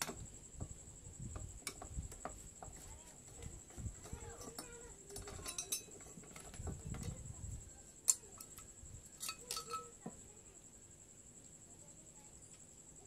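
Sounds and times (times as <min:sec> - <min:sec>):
screwdriver on metal: 0:01.3 - 0:07.3, 0:08.0 - 0:10.1
metal parts clinking: 0:04.0 - 0:07.1, 0:08.1 - 0:10.0.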